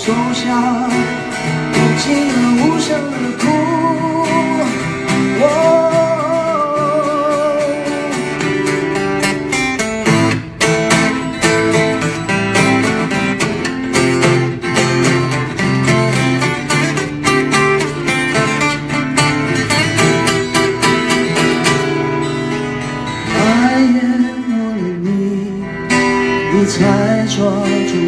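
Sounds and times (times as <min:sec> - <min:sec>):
person singing with vibrato: 0:00.0 - 0:08.9, 0:23.1 - 0:28.0
acoustic guitars strummed: 0:00.0 - 0:28.0.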